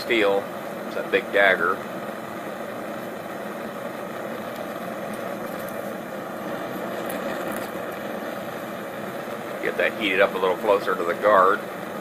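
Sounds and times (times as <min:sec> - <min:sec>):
propane burner flame rushing: 0:00.0 - 0:12.0.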